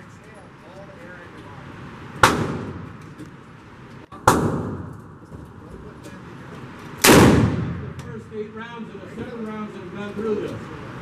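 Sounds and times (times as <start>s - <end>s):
revolver gunshots echoing: 2.2s - 3.0s, 4.2s - 5.2s, 7.0s - 8.0s.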